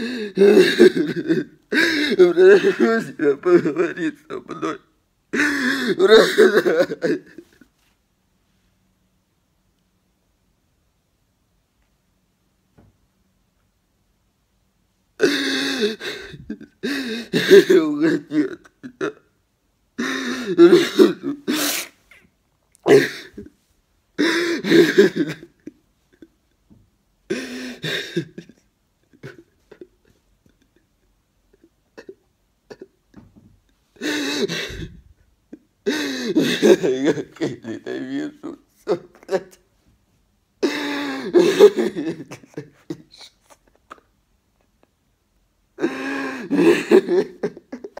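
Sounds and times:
man crying: 0.0s - 7.6s, 15.2s - 19.3s, 20.0s - 21.8s, 22.8s - 23.5s, 24.2s - 26.4s, 27.3s - 30.8s, 31.5s - 33.0s, 34.0s - 39.6s, 40.6s - 44.1s, 45.8s - 48.0s
man sobbing: 0.0s - 7.7s, 15.2s - 19.3s, 20.0s - 21.8s, 22.8s - 23.6s, 24.2s - 26.6s, 27.3s - 33.3s, 33.9s - 39.6s, 40.6s - 45.0s, 45.8s - 48.0s.

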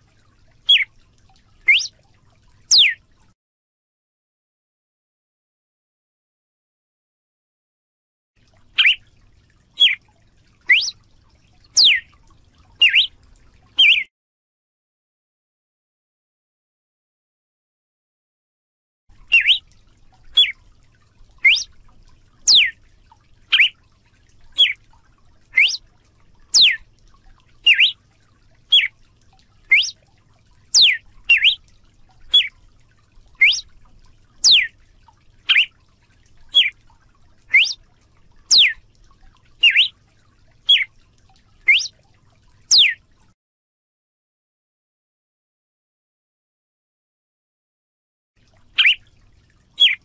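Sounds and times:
bird whistling short notes: 0.7s - 0.9s, 1.7s - 1.9s, 2.7s - 3.0s, 8.8s - 9.0s, 9.8s - 10.0s, 10.7s - 11.0s, 11.8s - 12.0s, 12.8s - 13.1s, 13.8s - 14.1s, 19.3s - 19.6s, 21.4s - 21.7s, 23.5s - 23.7s, 24.6s - 24.8s, 25.6s - 25.8s, 26.6s - 26.8s, 27.7s - 28.0s, 28.7s - 28.9s, 29.7s - 30.0s, 30.8s - 31.6s, 33.4s - 33.6s, 34.4s - 34.7s, 35.5s - 35.7s, 37.5s - 37.8s, 38.5s - 38.8s, 39.6s - 39.9s, 40.7s - 40.9s, 41.7s - 41.9s, 42.7s - 43.0s, 49.8s - 50.0s.

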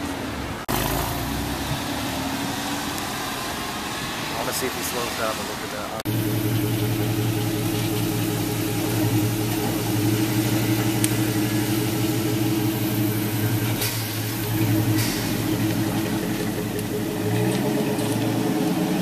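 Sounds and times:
car engine idling: 5.6s - 19.0s.

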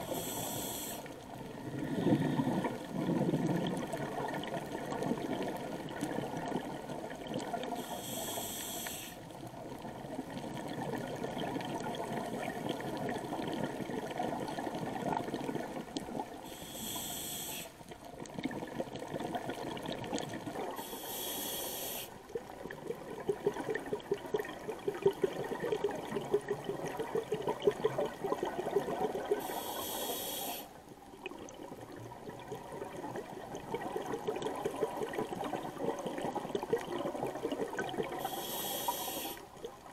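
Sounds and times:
regulator inhalation hiss: 0.0s - 1.2s, 7.8s - 9.2s, 16.4s - 17.8s, 20.8s - 22.2s, 29.4s - 30.8s, 38.2s - 39.5s
exhaled air bubbling: 0.0s - 39.9s.

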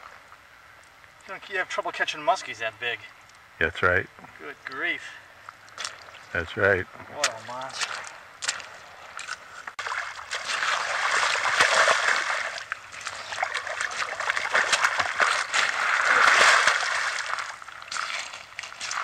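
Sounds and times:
fish thrashing and splashing in water: 7.2s - 19.0s.

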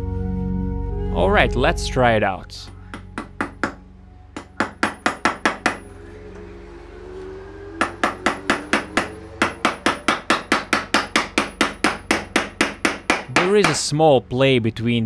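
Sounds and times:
hammer striking nail into wood: 2.9s - 3.8s, 4.4s - 5.8s, 7.8s - 13.8s.

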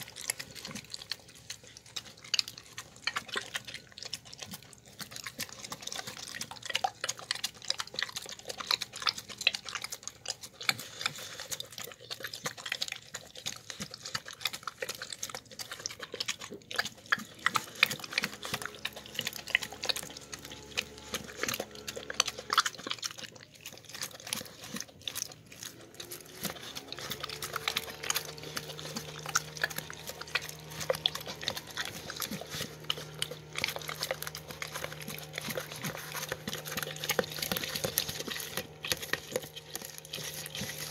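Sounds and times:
dog eating wet food: 0.0s - 40.9s
faint steady hum: 14.6s - 40.9s.

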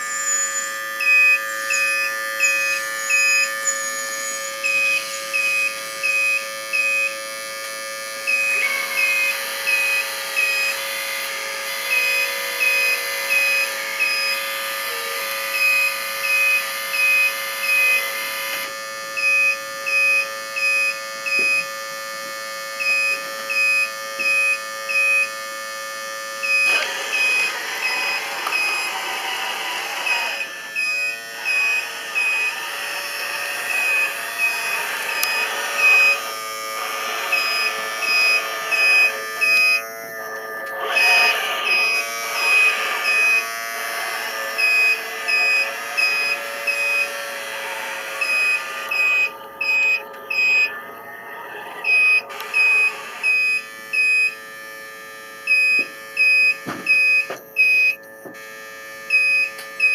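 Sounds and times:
electronic back-up alarm beeping: 0.0s - 47.4s, 48.0s - 59.9s
steady electronic hum: 0.0s - 59.9s.

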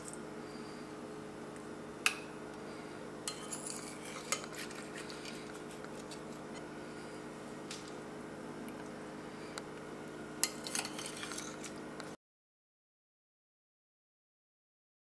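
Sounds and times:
metal spoon clinking on plate: 3.3s - 4.6s, 10.4s - 11.6s.

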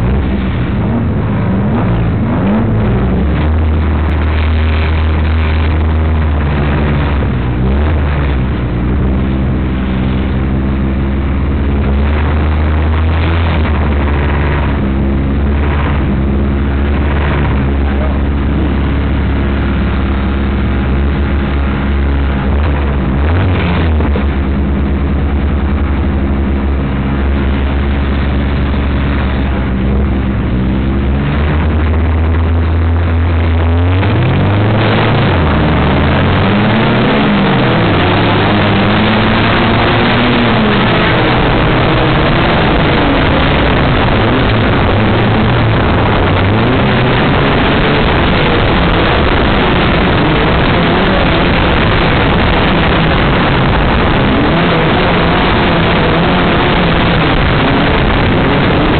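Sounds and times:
loud rushing noise: 0.0s - 58.9s
race car engine idling and revving: 0.0s - 58.9s.

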